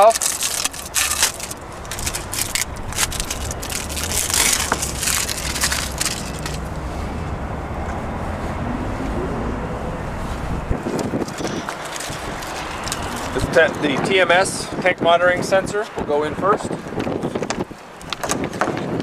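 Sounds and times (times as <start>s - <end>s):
plastic scraping and crackling: 0.0s - 6.7s, 10.8s - 14.1s
low rumble: 0.3s - 14.2s.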